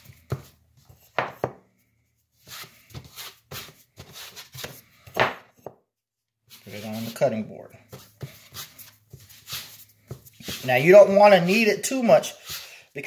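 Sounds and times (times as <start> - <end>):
soft rubbing and patting of dough: 0.0 - 5.7, 6.4 - 12.6
dough thumping on board: 1.2 - 1.6, 5.1 - 5.8.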